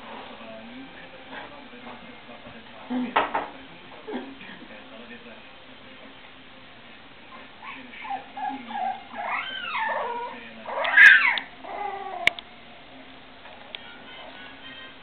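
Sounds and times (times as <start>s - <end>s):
puppies whining and yelping: 7.4s - 12.3s.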